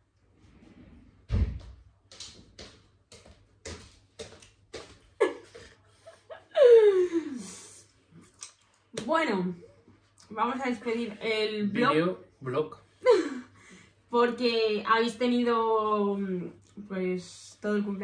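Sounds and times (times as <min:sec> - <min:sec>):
door thumping: 0:01.3 - 0:01.8.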